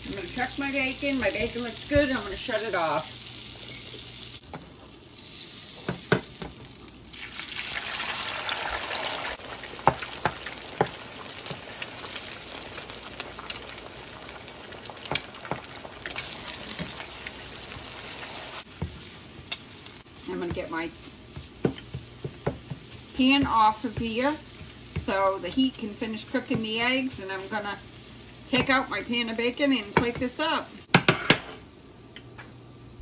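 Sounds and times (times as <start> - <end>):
eggs sizzling in a skillet: 0.0 - 31.1
spatula tapping a pan: 9.8 - 11.6, 21.3 - 25.2.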